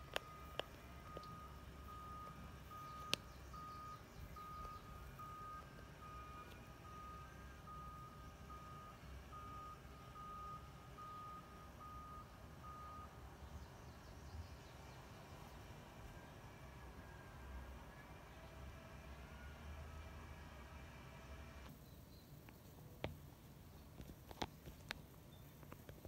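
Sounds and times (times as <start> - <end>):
faint reversing alarm beeping: 0.0 - 13.6.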